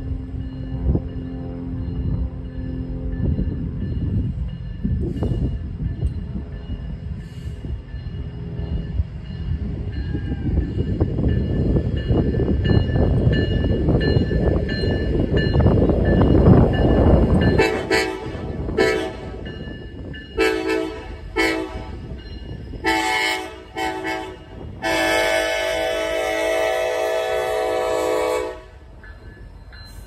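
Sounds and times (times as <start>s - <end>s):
crossing bell ringing: 0.0s - 30.0s
locomotive horn blasts: 17.5s - 19.4s, 20.4s - 22.1s, 22.8s - 28.9s.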